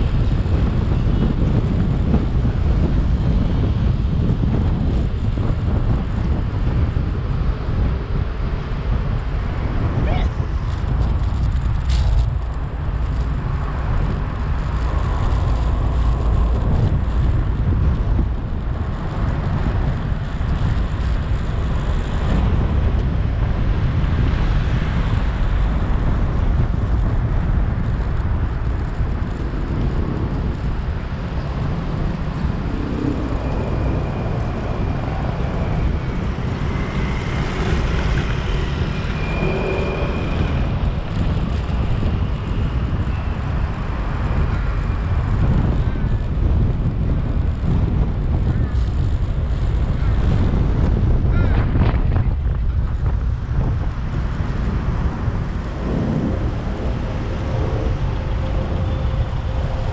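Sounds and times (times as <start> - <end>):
road and traffic rumble: 0.0 - 59.9.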